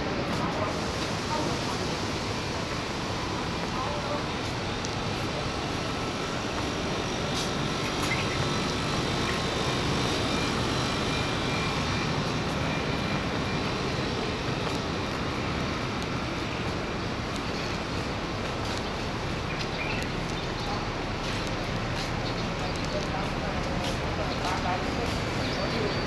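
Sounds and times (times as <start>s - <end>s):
city background hum: 0.0s - 26.0s.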